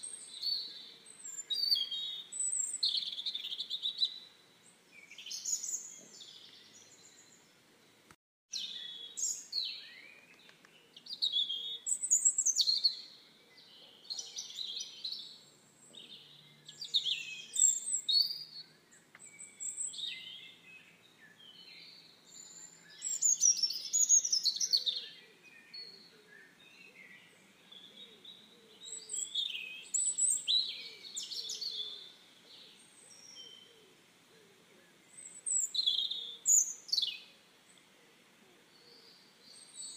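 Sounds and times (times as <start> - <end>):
songbirds chirping and singing: 0.0 - 39.9.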